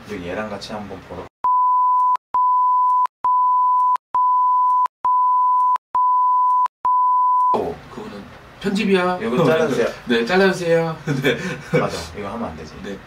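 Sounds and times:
censor bleep tone: 1.4 - 7.6.

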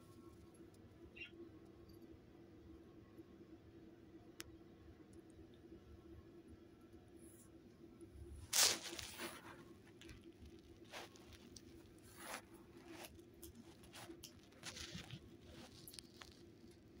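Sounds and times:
faint steady hum: 0.0 - 17.0
blanket rustling: 8.5 - 10.1, 10.8 - 16.4.

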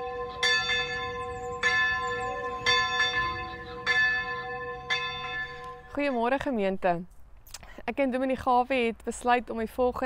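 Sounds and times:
church bell tolling: 0.0 - 6.2.

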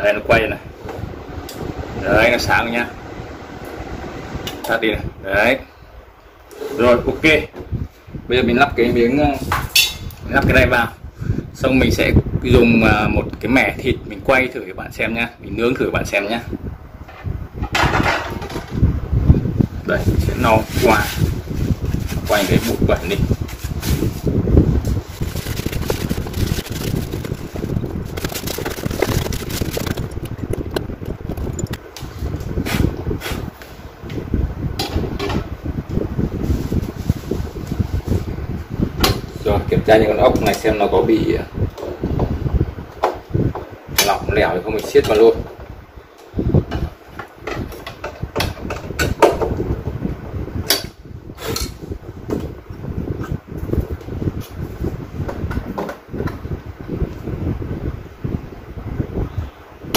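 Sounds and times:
low rumbling: 0.0 - 14.2, 14.8 - 40.0.

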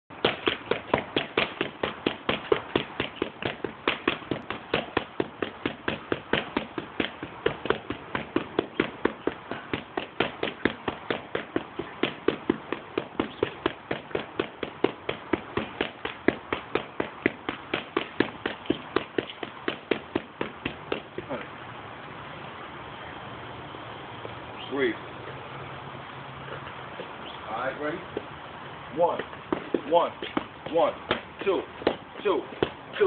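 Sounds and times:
boxing gloves smacking mitts: 0.1 - 21.5, 29.1 - 33.0.

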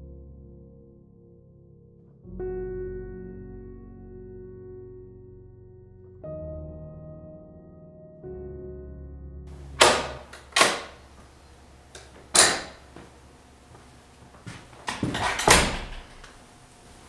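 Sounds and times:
sharp knocks and clatters: 14.5 - 16.4.

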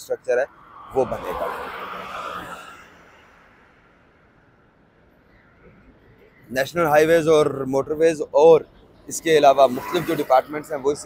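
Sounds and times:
vehicle passing by: 0.4 - 4.4, 9.2 - 11.0.

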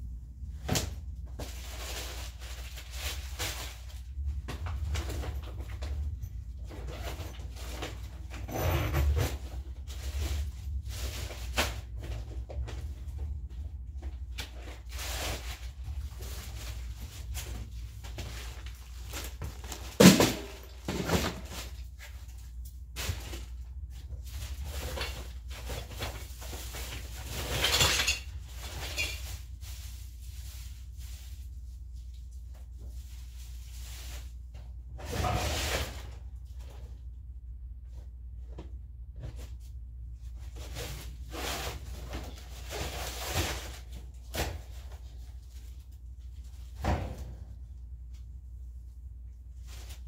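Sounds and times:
items knocking and clunking: 4.2 - 10.4, 16.5 - 22.0, 24.6 - 29.4.

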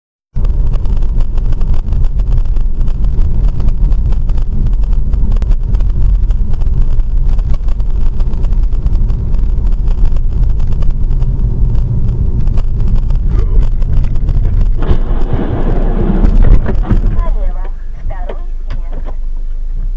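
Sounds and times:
car driving rumble: 0.3 - 19.9.

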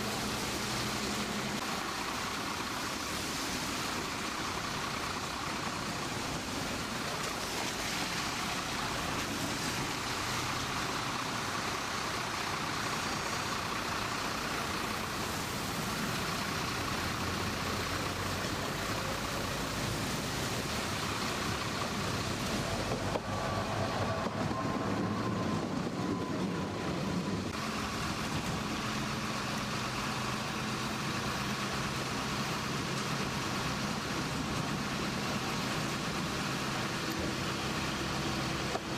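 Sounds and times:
street traffic noise: 0.0 - 38.9
tram passing: 0.0 - 38.9.

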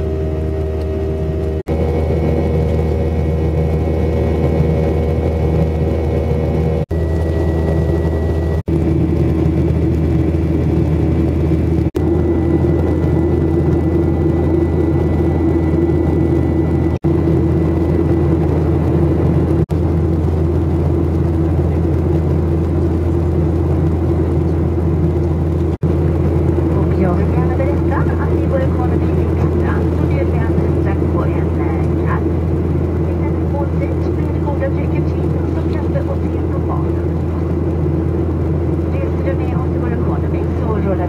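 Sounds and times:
thin high whine: 0.0 - 9.4
jet engines droning in cabin: 0.0 - 41.0.

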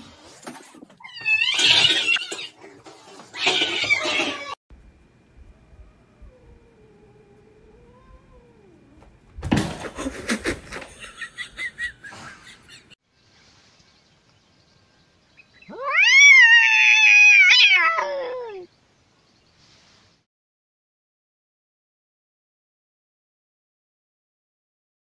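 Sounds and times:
cat yowling: 15.7 - 18.7.

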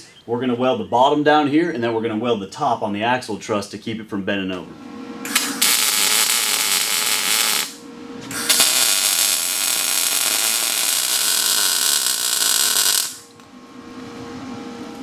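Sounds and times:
electric arc welding: 5.2 - 13.3.

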